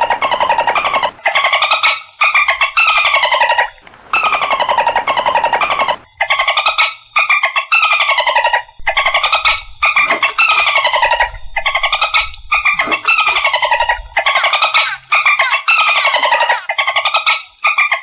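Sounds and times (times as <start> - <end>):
dolphin squawks: 12.7 - 17.3.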